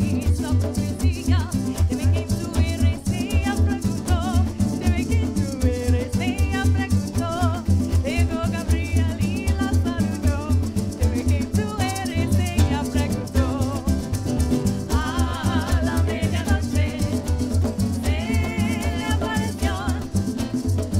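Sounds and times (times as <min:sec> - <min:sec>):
pulsing bass: 0:00.0 - 0:20.9
shakers rattling: 0:00.0 - 0:20.9
strummed guitar: 0:00.0 - 0:20.9
people singing: 0:12.1 - 0:14.1, 0:14.7 - 0:20.5.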